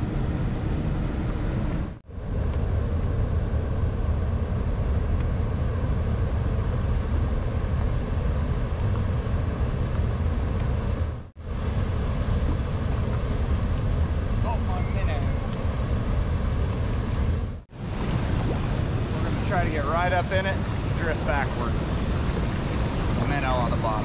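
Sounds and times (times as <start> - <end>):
river water rushing: 17.7 - 24.0.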